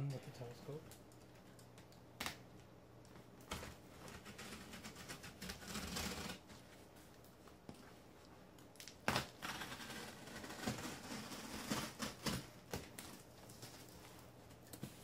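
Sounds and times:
knife cutting through packing tape: 0:04.1 - 0:06.4, 0:09.0 - 0:13.2.

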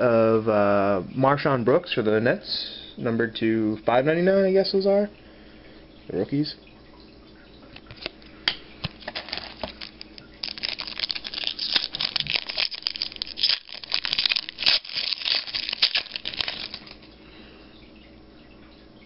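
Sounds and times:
foil wrapper tearing and crinkling: 0:08.8 - 0:17.1.

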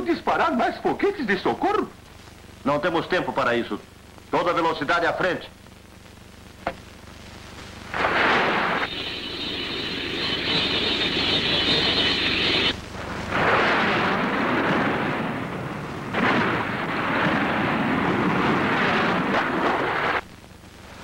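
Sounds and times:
rushing noise surges: 0:07.8 - 0:20.2
cartoon jet engine roar: 0:08.0 - 0:12.8.

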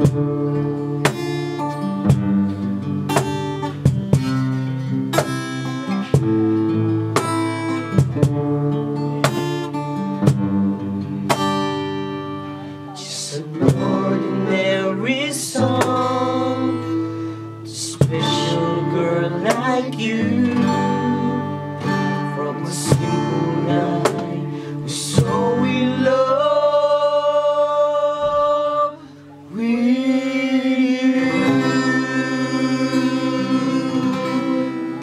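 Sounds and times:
acoustic guitars strumming: 0:00.0 - 0:35.0
men singing together: 0:13.0 - 0:17.1, 0:17.7 - 0:21.6, 0:22.2 - 0:29.0, 0:29.6 - 0:35.0.

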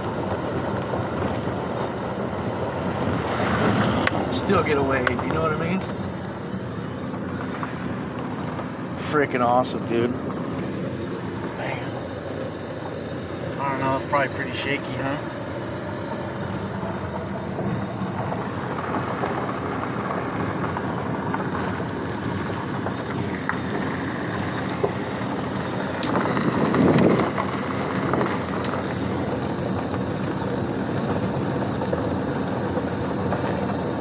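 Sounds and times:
gravel clicks: 0:00.0 - 0:34.0
vehicle engine and tyre noise: 0:00.0 - 0:34.0.

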